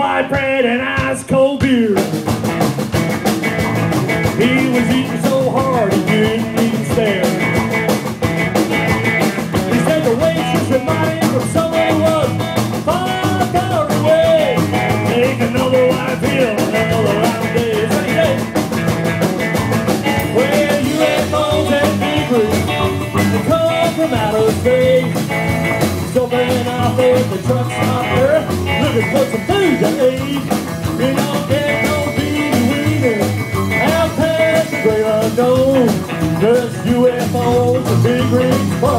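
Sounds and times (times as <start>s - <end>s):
rockabilly band playing: 0.0s - 38.9s.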